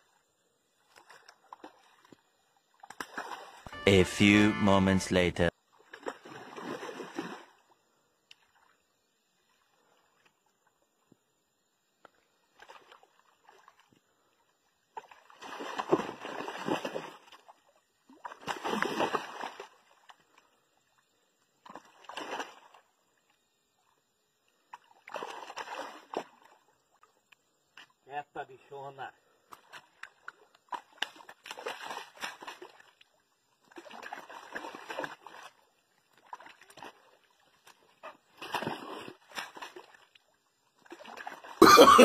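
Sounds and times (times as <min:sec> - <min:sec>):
fish splashing in water: 0:29.6 - 0:33.0, 0:33.6 - 0:40.2.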